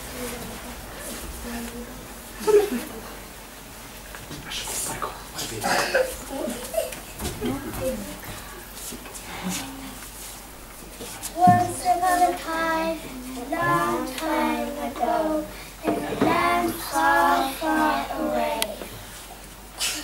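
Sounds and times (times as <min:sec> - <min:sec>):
child singing unaccompanied: 0:11.3 - 0:18.9.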